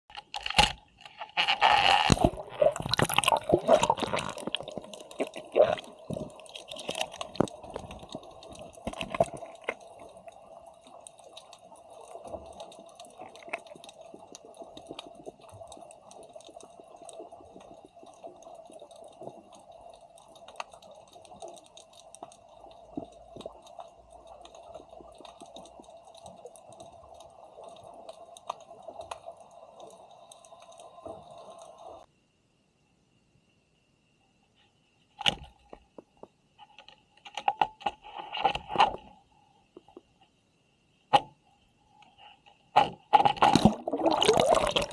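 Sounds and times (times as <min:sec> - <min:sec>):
faint underwater clicking: 0:00.1 - 0:32.1
underwater hum: 0:00.9 - 0:32.3, 0:38.0 - 0:44.9
water splashing and bubbling: 0:01.3 - 0:32.1, 0:42.8 - 0:44.9.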